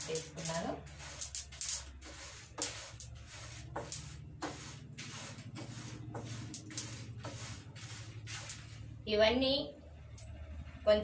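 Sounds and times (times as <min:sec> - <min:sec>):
spatula scraping in a pan: 0:00.0 - 0:09.0.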